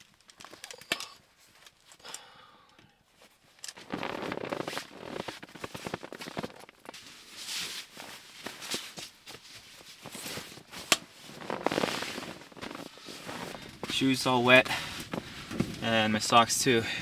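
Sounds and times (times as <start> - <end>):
sleeping bag fabric rustling: 3.2 - 15.8.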